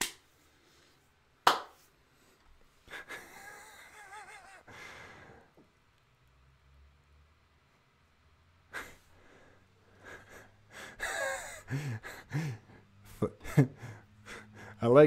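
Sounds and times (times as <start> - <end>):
man laughing softly: 2.8 - 5.5, 8.7 - 9.1, 9.9 - 14.8
sharp breath: 13.8 - 14.8.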